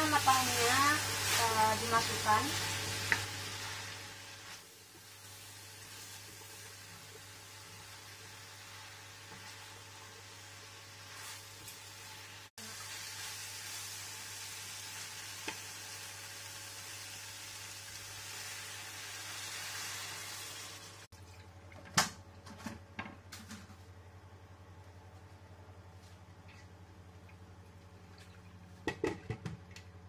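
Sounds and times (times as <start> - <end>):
stir-fry sizzling in a wok: 0.0 - 21.1.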